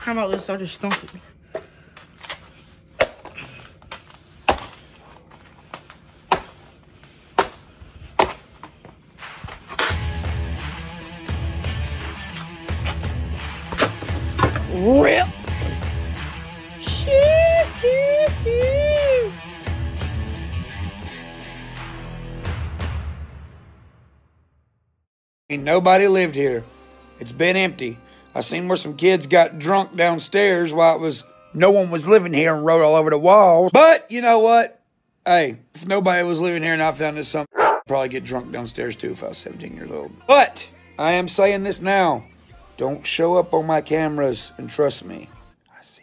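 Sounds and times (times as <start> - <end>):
rock music with guitar: 9.9 - 22.6.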